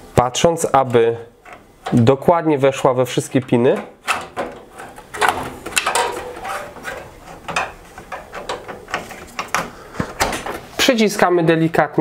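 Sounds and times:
clicks and knocks of hardware: 0:01.4 - 0:02.1, 0:03.3 - 0:10.6
metal scraping: 0:03.0 - 0:09.7.

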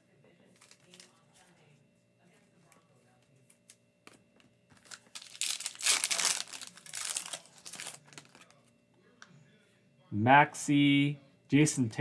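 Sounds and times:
foil wrapper crinkling and tearing: 0:00.6 - 0:01.2, 0:04.7 - 0:08.6.

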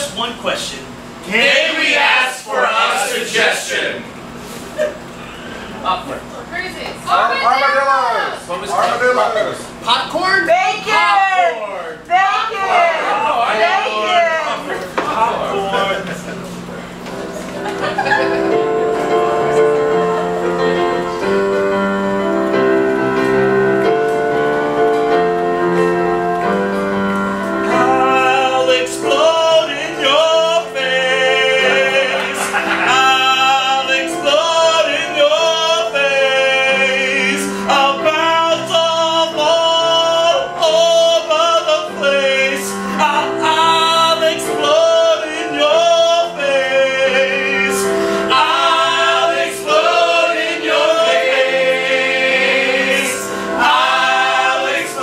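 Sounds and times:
group of people singing: 0:01.3 - 0:04.1, 0:27.6 - 0:55.0.

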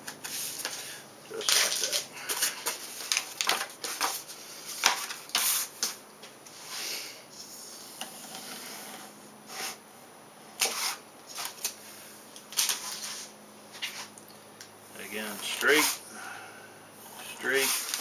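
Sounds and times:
contact paper crinkling: 0:00.2 - 0:06.0.

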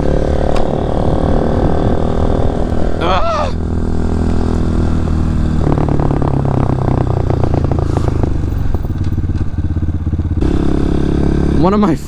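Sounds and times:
dirt bike engine running: 0:00.0 - 0:12.0.

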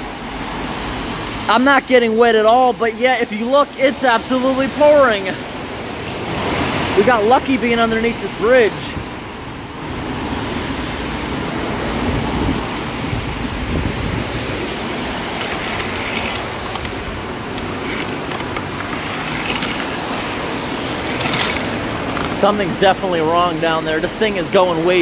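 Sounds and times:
heavy rain: 0:00.0 - 0:25.0
water draining into storm drain: 0:00.0 - 0:25.0
pole stirring leaves and debris: 0:13.4 - 0:22.8.

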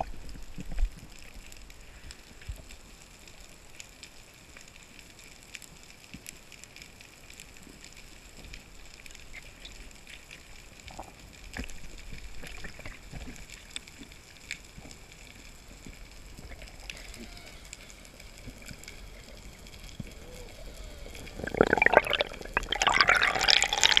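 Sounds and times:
crackling clicks: 0:00.0 - 0:24.0
underwater hiss: 0:16.5 - 0:24.0.

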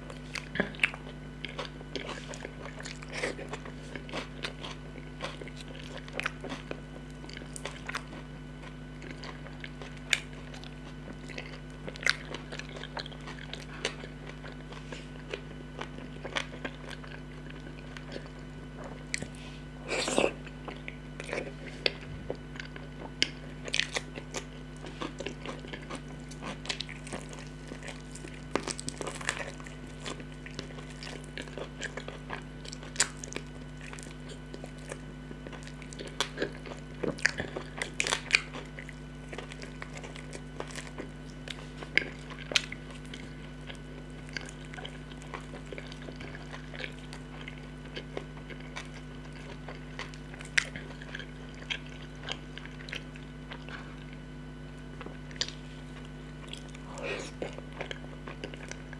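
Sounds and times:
person chewing with crunches: 0:00.0 - 0:58.9.

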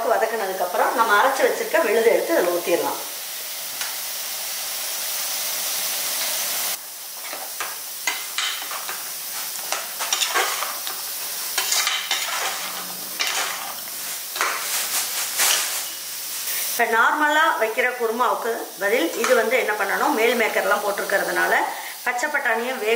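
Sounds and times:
paste sizzling in pot: 0:00.2 - 0:22.9
spoon scraping metal pot: 0:11.6 - 0:14.6.

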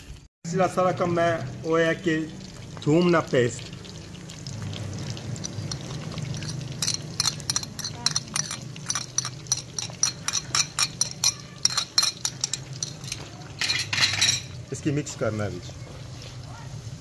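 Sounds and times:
metal spoon clinking on plate: 0:05.4 - 0:14.6.

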